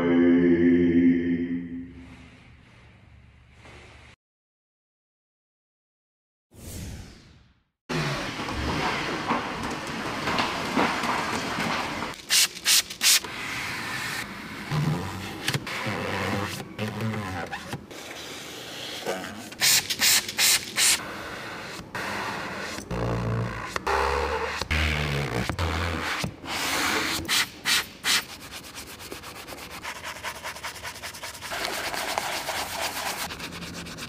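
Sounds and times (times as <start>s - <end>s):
cleaning pad scrubbing leather: 27.0s - 34.0s.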